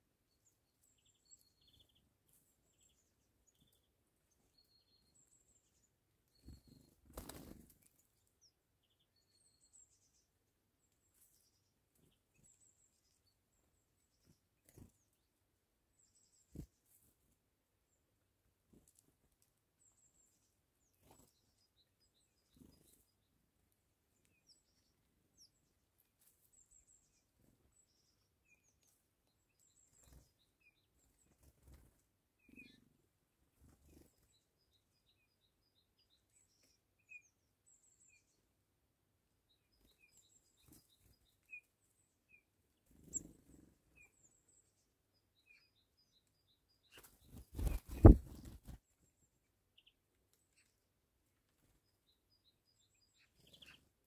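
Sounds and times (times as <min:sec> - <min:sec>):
bird chirps and calls: 0:26.5 - 0:33.0, 0:39.5 - 0:50.8, 0:51.6 - 0:54.0
bird wing flaps and knocks: 0:47.3 - 0:48.8.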